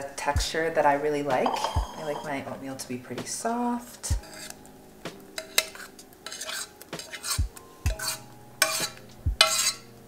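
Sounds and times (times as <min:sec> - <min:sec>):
metal spoon scraping saucepan: 0:01.4 - 0:02.5, 0:04.2 - 0:04.6, 0:05.4 - 0:09.9.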